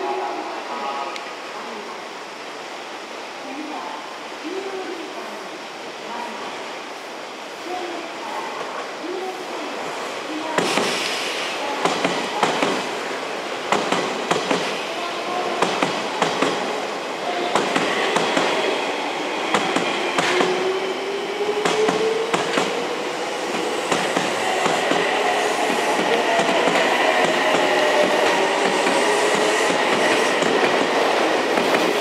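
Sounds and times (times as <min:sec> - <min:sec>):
electric train wheels clicking: 0:10.6 - 0:13.0, 0:13.6 - 0:32.0
train whine rising in pitch: 0:17.2 - 0:31.5.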